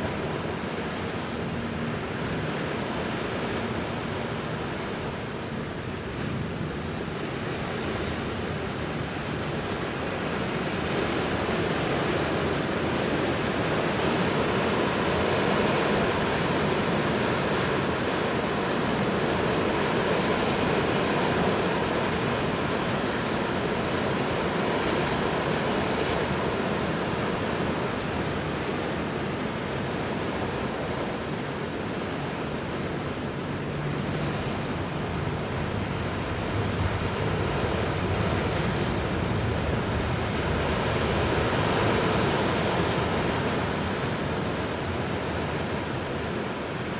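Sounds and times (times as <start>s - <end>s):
sea waves: 0.0s - 46.9s
wind: 0.0s - 46.9s.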